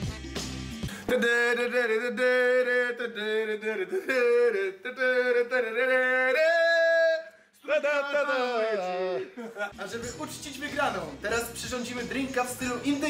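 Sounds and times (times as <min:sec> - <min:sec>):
man singing: 0:00.0 - 0:09.4.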